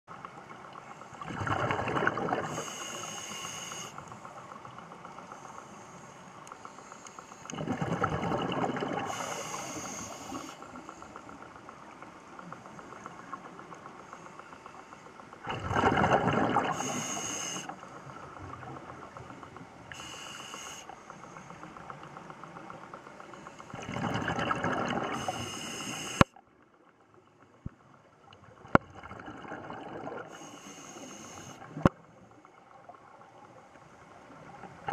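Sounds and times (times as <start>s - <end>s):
exhaled bubbles rushing: 1.2s - 2.6s, 7.5s - 9.1s, 15.4s - 16.9s, 23.7s - 25.4s, 28.6s - 30.4s
regulator inhalation hiss: 2.5s - 4.2s, 9.1s - 11.0s, 16.7s - 17.8s, 19.9s - 21.6s, 25.1s - 26.3s, 30.3s - 31.8s
sharp clicks underwater: 6.3s - 17.8s, 18.5s - 32.0s.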